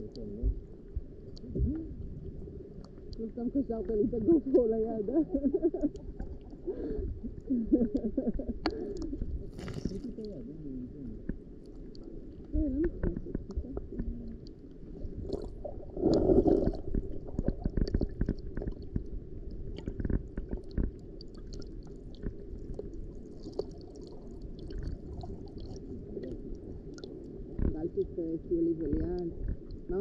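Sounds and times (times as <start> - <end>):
underwater clicks and crackles: 0.0 - 30.0
underwater rumble of moving water: 0.0 - 30.0
water surge: 14.8 - 18.9.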